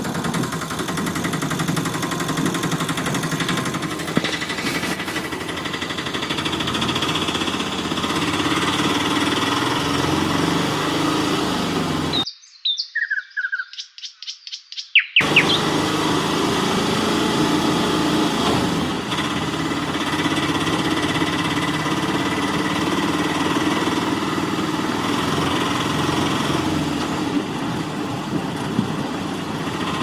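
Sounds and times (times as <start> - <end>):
small motor rattling: 0.0 - 12.2, 15.2 - 30.0
bird chirps: 12.1 - 15.7.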